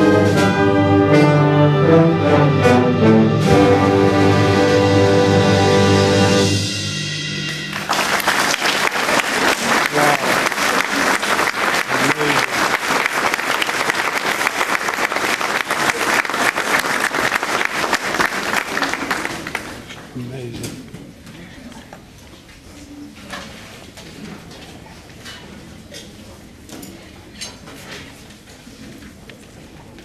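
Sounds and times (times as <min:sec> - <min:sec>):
concert band held chord: 0:00.0 - 0:18.6
audience applause: 0:07.5 - 0:20.0.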